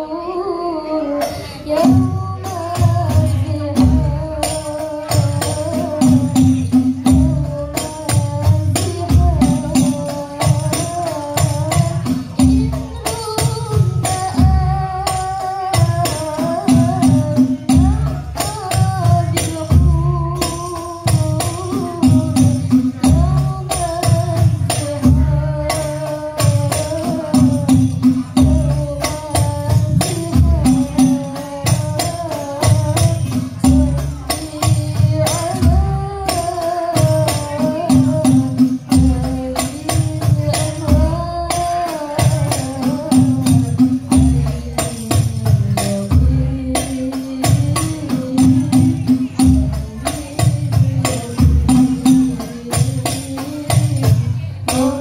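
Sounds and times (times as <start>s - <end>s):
girls singing through microphones: 0.0s - 55.0s
frame drums beating: 1.2s - 55.0s.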